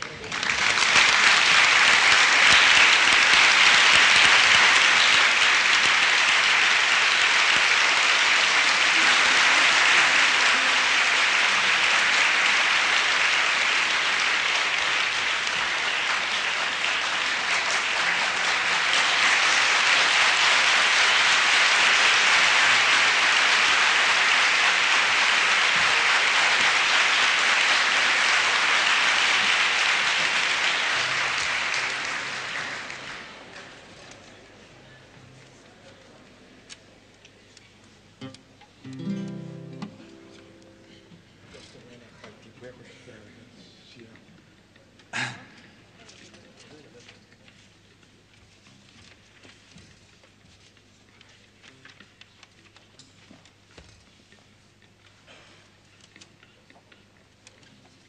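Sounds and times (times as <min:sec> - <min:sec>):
audience applauding: 0:00.0 - 0:34.5.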